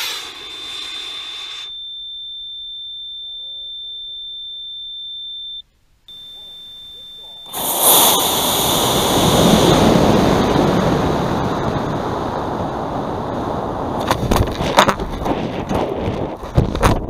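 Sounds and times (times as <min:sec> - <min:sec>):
rocket motors roaring: 0:00.0 - 0:01.7, 0:06.1 - 0:16.2
wind rushing past: 0:07.5 - 0:16.4.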